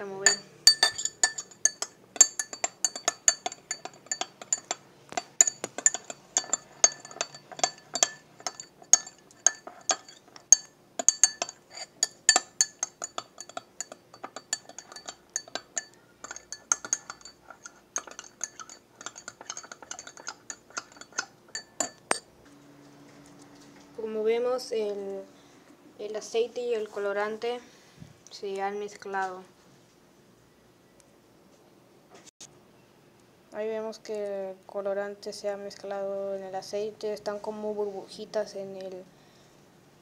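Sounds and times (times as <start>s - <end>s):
spoon clinking in a glass: 0.2s - 22.3s.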